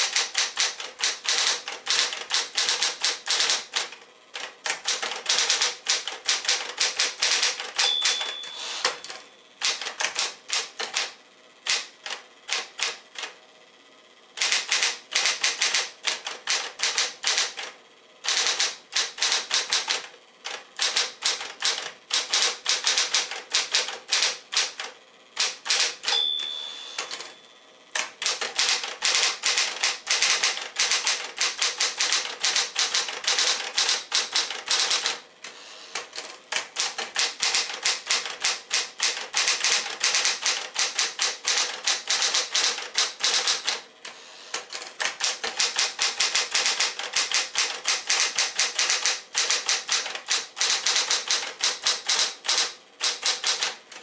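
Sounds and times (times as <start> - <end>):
typewriter carriage return: 0.0 - 13.4, 14.4 - 27.4, 28.0 - 35.2, 36.0 - 43.8, 44.6 - 54.0
typewriter keystrokes: 0.0 - 13.4, 14.4 - 27.3, 28.0 - 35.2, 36.0 - 43.8, 44.6 - 54.0
typewriter motor hum: 0.0 - 13.5, 14.3 - 54.0
typewriter margin bell: 0.1 - 3.6, 4.8 - 9.2, 25.4 - 27.4, 37.2 - 43.7, 45.2 - 53.7.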